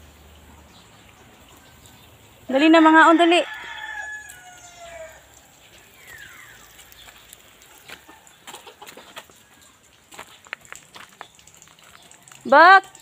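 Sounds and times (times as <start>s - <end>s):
rooster crowing: 3.0s - 5.4s
footsteps on stony ground: 5.8s - 12.5s.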